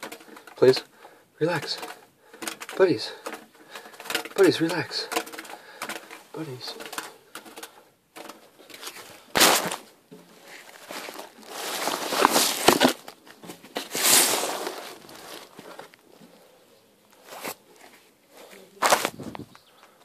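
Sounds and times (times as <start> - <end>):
cloth rustling near microphone: 8.2 - 16.0, 17.1 - 19.6.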